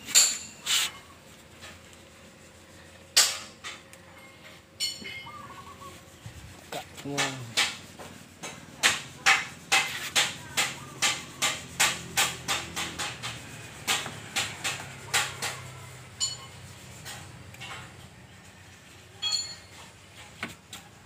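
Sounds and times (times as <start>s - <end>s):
hammer striking sheet metal: 8.4s - 16.4s.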